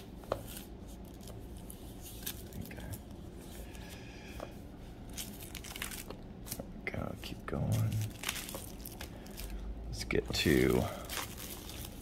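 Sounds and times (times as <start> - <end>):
paper pages rustling: 11.0 - 12.0.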